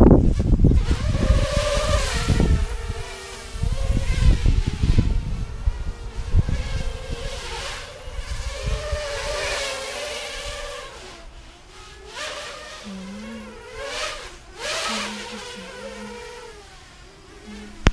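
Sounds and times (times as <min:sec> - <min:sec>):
quadcopter motors whining: 0:00.0 - 0:17.9.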